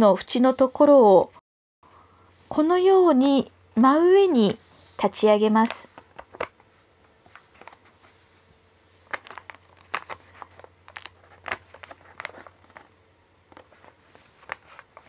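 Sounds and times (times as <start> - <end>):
paper crinkling and tapping: 5.6 - 8.2, 9.0 - 15.0.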